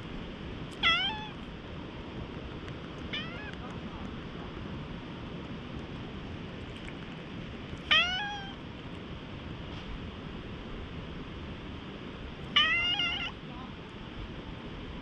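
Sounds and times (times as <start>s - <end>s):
cat meowing: 0.8s - 1.4s, 3.1s - 3.6s, 7.9s - 8.6s, 12.5s - 13.4s.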